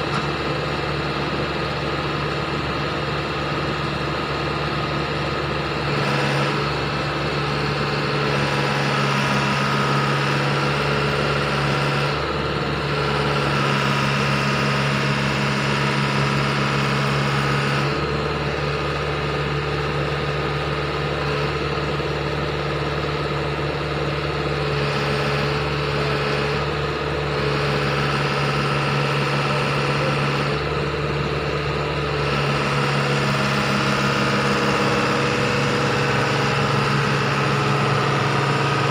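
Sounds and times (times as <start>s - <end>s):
diesel engine idling: 0.0s - 38.9s.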